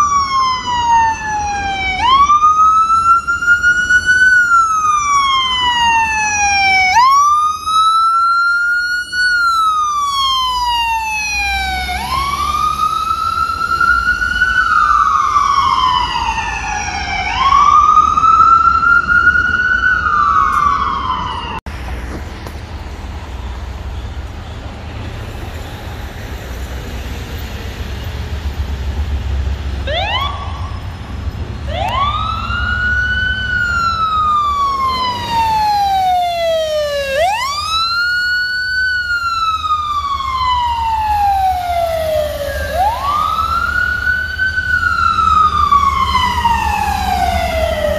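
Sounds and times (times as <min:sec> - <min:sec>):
ambulance siren wailing: 0:00.0 - 0:21.7, 0:29.8 - 0:47.9
siren whoops: 0:00.0 - 0:21.7, 0:29.8 - 0:47.9
low rumble of traffic: 0:00.0 - 0:47.9.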